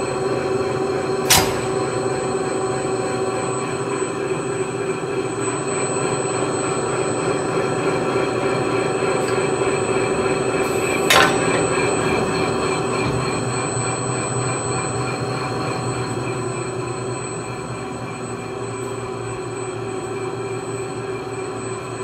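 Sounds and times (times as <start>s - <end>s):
slicer machine humming: 0.0s - 3.8s, 6.6s - 15.5s
sharp click: 1.3s - 2.0s.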